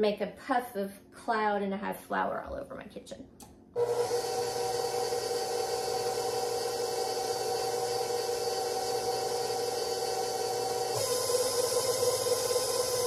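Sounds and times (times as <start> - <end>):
stand mixer motor whining: 3.8 - 13.0.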